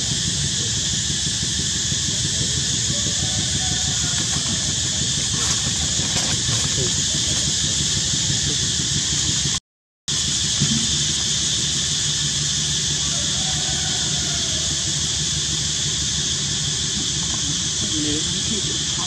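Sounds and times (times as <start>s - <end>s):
high-pitched hiss: 0.0s - 19.0s
low rumble: 10.4s - 13.0s.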